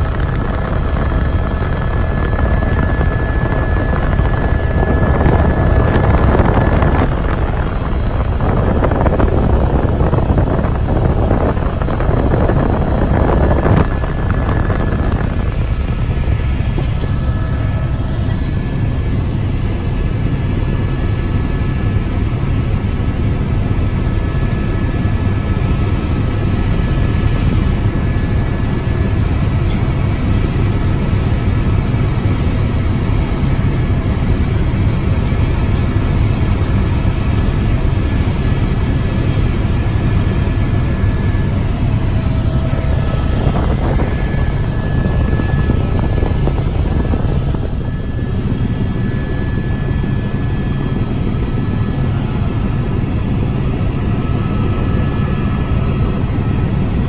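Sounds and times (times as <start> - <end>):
helicopter engine and rotor droning: 0.0 - 57.0
whining tones: 39.0 - 52.8
heavy rushing noise: 40.4 - 48.8.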